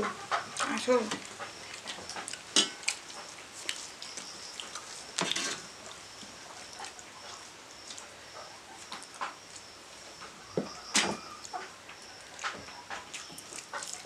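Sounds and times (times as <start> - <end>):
metal scraping on metal: 5.2 - 5.7.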